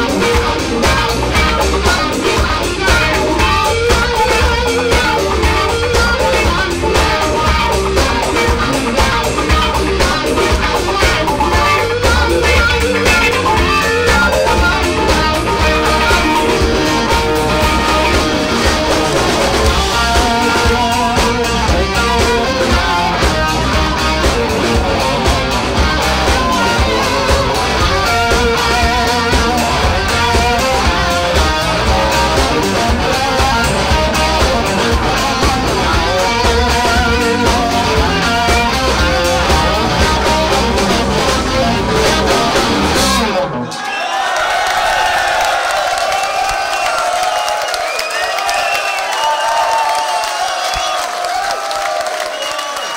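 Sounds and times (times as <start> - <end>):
drum kit: 0.0 - 43.6
bass guitar: 0.0 - 43.7
electric guitars: 0.0 - 43.8.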